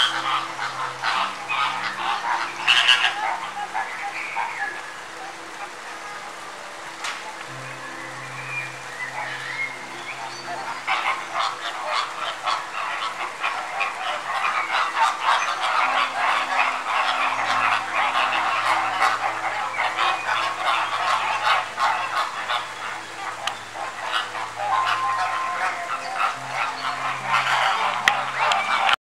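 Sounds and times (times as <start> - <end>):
soft sustained music: 0.0 - 29.0.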